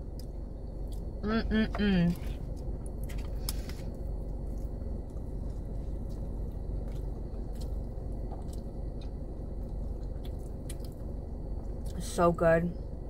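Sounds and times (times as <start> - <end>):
steady low hum: 0.0 - 13.0
close-up chewing: 2.4 - 12.0.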